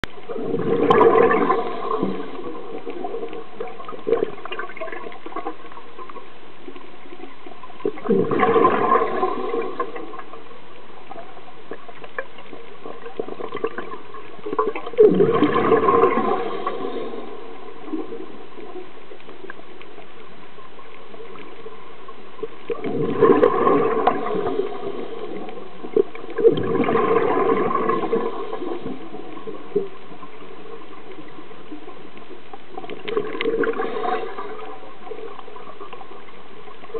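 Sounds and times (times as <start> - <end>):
underwater background noise: 0.0 - 36.9
exhaled breath bubbling underwater: 0.2 - 5.7, 7.8 - 10.4, 12.8 - 18.8, 22.7 - 30.4, 32.8 - 36.0.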